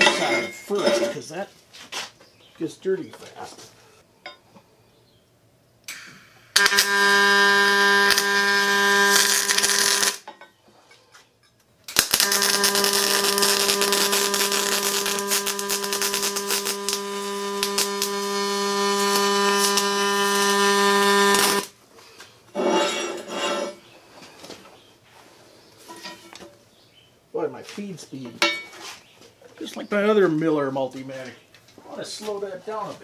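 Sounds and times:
welding arc buzzing: 5.9 - 10.3, 11.9 - 21.8.

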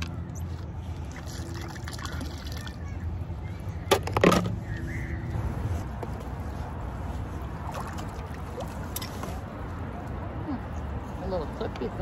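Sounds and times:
rope and hook handling noises: 7.8 - 10.2.

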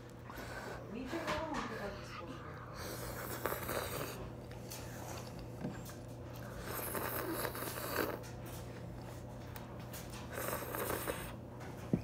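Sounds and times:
steady low hum: 0.0 - 12.0
slurping soup: 6.6 - 8.2, 10.3 - 11.3.

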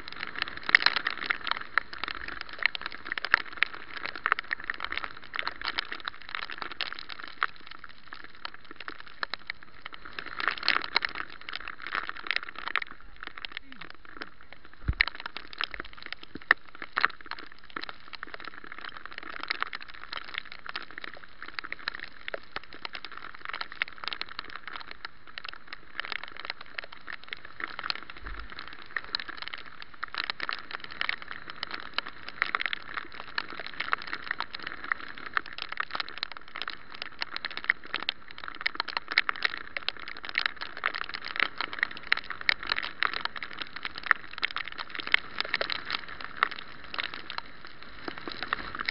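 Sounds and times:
rain pattering on camera housing: 0.0 - 48.9.

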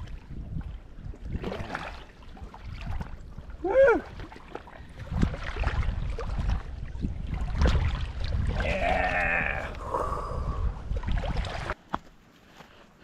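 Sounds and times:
wind rumbling on microphone: 0.0 - 11.8
water sloshing in shallows: 0.0 - 13.0
person whooping: 3.6 - 4.1, 8.6 - 9.9.

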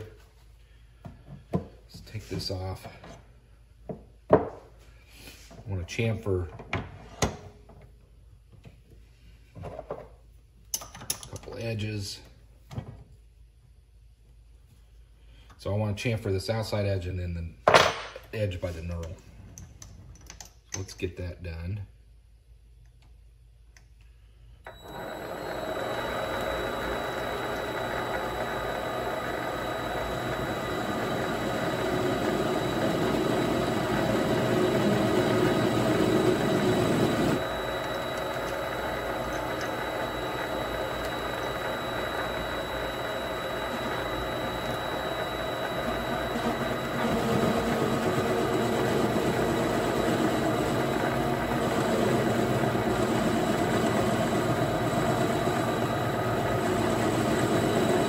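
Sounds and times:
lathe motor whining: 24.7 - 58.0.

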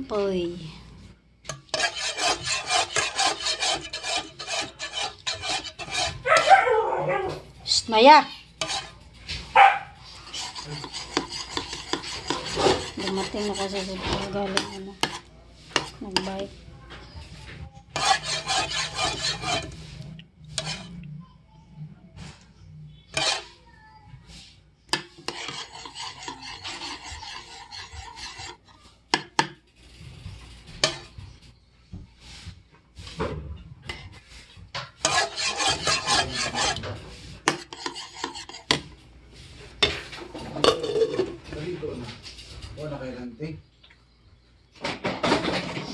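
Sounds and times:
spoon scraping ceramic bowl: 1.4 - 6.5, 7.7 - 9.4, 10.0 - 16.6, 17.3 - 21.1, 23.1 - 23.6, 25.0 - 31.5, 33.9 - 39.0, 39.7 - 41.4.

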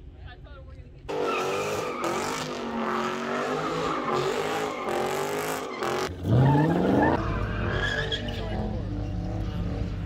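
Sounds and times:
car engine revving high: 1.1 - 7.6
tire squeal: 1.1 - 10.0.

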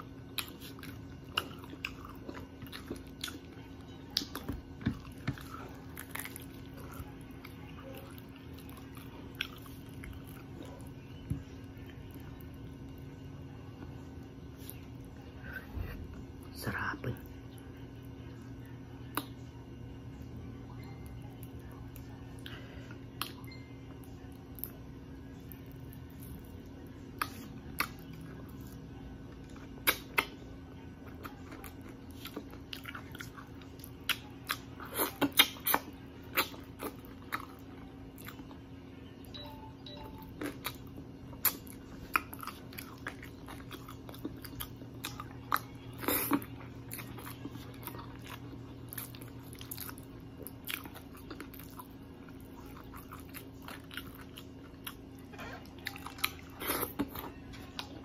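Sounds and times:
chewing and biting food: 0.0 - 13.1, 25.4 - 58.0
mouth clicks and crunches: 29.5 - 30.4, 31.2 - 37.6.

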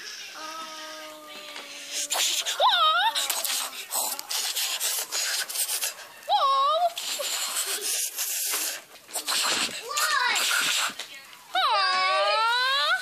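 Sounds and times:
child yelling: 9.8 - 10.6, 11.5 - 13.0.

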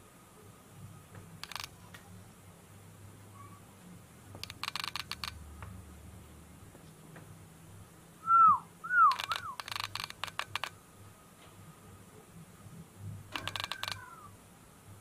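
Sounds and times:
sharp clicks: 1.4 - 2.1, 4.3 - 5.4, 9.0 - 10.8, 13.3 - 14.2
whistled bird chirps: 8.2 - 9.6.

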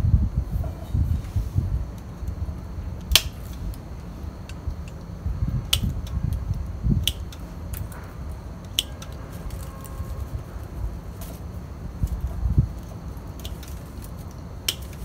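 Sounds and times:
low background rumble: 0.0 - 15.0
pruning shears snipping: 3.0 - 3.8, 5.7 - 6.2, 7.0 - 10.2, 13.3 - 15.0.

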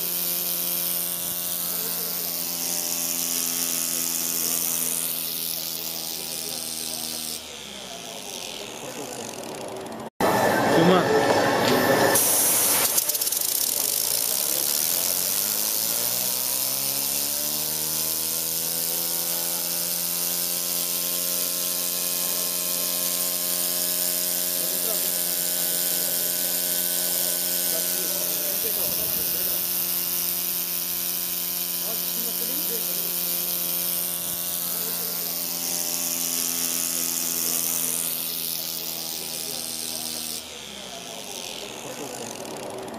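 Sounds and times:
pneumatic motor humming: 0.0 - 42.9
high hiss of air: 11.8 - 13.1
compressed air hissing: 12.1 - 16.1.

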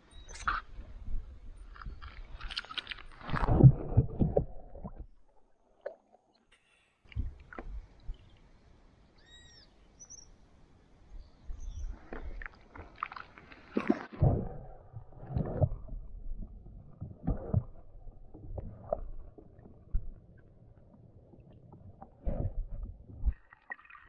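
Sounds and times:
water splashing against camera: 0.3 - 6.4, 11.9 - 24.0
muffled underwater rumbles: 0.5 - 5.6, 13.6 - 23.4.

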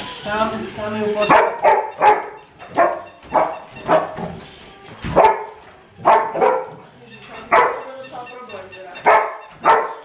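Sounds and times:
dog barking: 1.2 - 4.2, 5.1 - 6.8, 7.4 - 8.0, 9.0 - 10.0.

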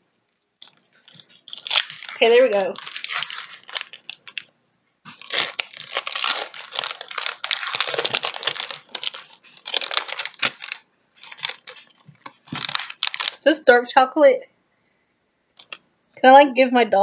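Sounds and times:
plastic wrapper crinkling and tearing: 0.6 - 4.5, 5.1 - 13.6, 15.6 - 15.8.

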